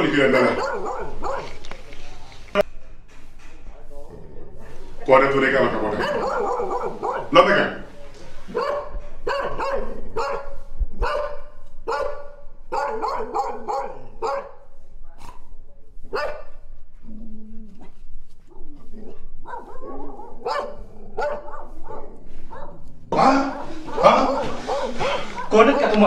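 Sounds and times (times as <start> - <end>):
dog barking: 0.4 - 1.6, 5.8 - 7.6, 8.5 - 16.6, 18.5 - 26.0.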